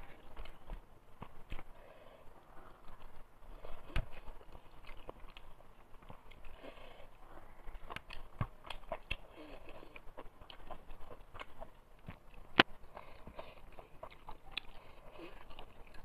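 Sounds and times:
chewing with wet mouth clicks: 7.7 - 16.0.

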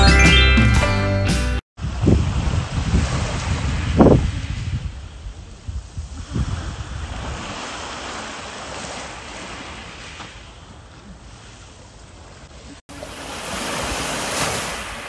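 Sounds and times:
wind gusting on microphone: 1.8 - 11.0
small waves on pebble beach: 5.8 - 10.6, 12.6 - 15.0.

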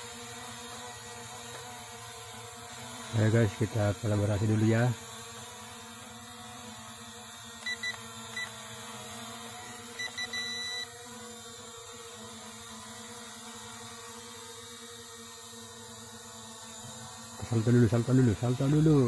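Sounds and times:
short electronic beeps: 7.6 - 8.5, 10.0 - 10.9.

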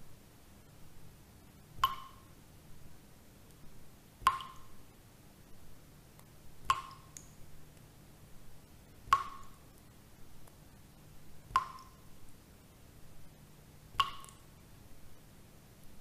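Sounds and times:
faint low hum: 0.0 - 16.0.

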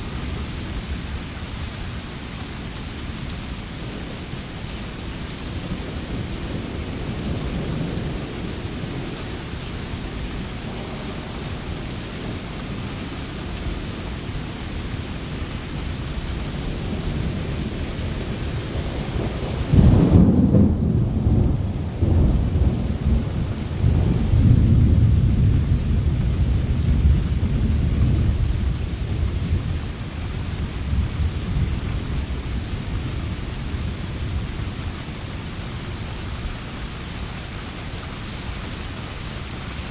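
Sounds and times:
steady rain: 0.0 - 39.9
thunder rumbling: 5.4 - 14.4, 16.0 - 35.2.

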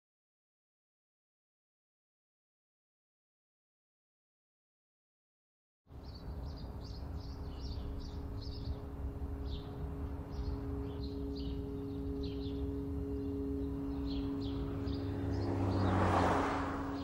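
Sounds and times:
small birds chirping: 5.9 - 17.0
two-note hum: 6.0 - 17.0.

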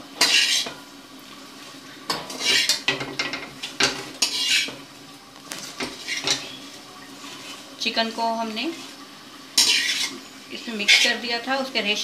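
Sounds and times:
metal spoon scraping a wok: 0.2 - 0.8, 2.1 - 4.8, 5.6 - 7.7, 9.6 - 11.2.

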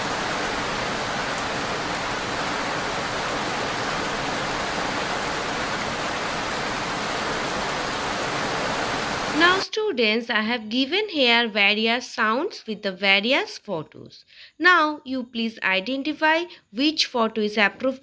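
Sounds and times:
rain falling: 0.0 - 9.6.

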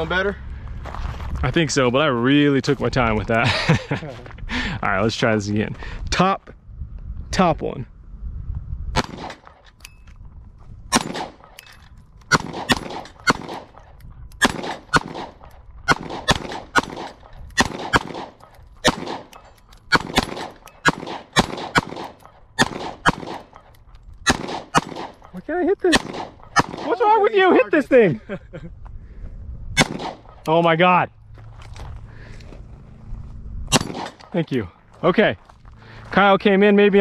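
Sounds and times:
pistol shots: 9.0 - 9.6, 10.9 - 11.6, 12.3 - 23.6, 24.2 - 25.3, 25.9 - 27.0, 29.8 - 30.4, 33.7 - 34.3.

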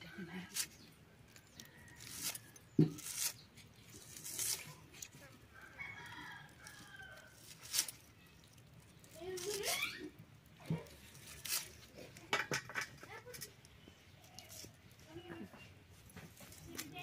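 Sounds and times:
knife slicing onion: 2.0 - 3.4
rooster crowing: 5.6 - 7.4.

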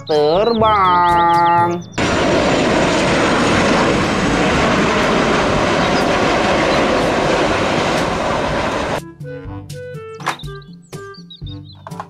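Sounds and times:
airplane engine rushing: 1.3 - 9.1.

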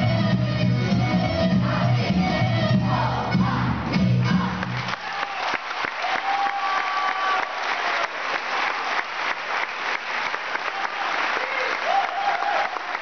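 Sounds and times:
folk dance music: 0.0 - 5.2
audience applauding: 4.6 - 13.0.

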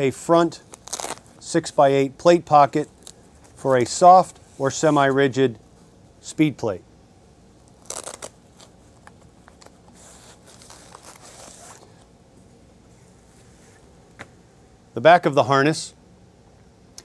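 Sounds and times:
fabric rustling and scraping: 0.6 - 1.4, 7.7 - 12.1, 12.9 - 14.0
short ripping sound: 0.6 - 1.4, 7.7 - 8.8, 9.9 - 12.0.

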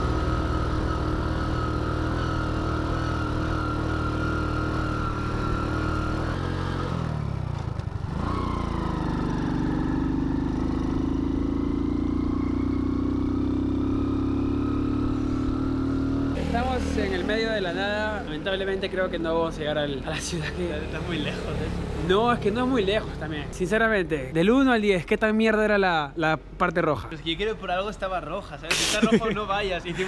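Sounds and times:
small motorcycle engine running: 0.0 - 19.4.

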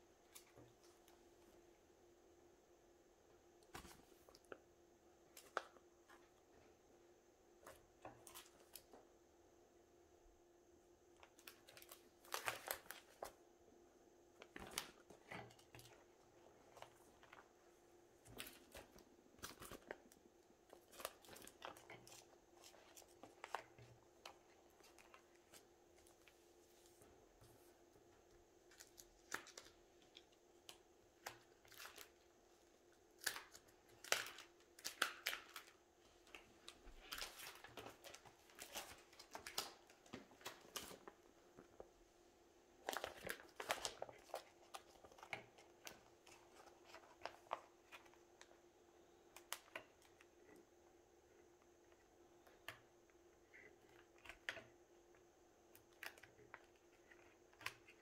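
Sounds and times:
faint steady hum: 0.0 - 58.0
plastic sleeves crinkling: 11.2 - 13.4, 14.4 - 32.3, 33.1 - 42.0, 42.7 - 48.6.

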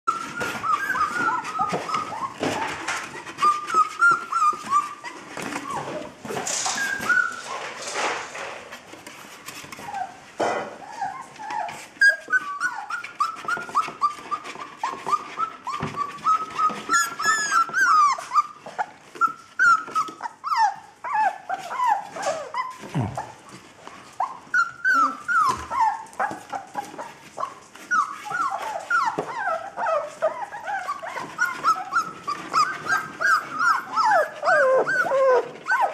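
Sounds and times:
puppies whining and whimpering: 0.1 - 8.0, 9.5 - 35.9
knocks and scratching: 0.2 - 11.8.

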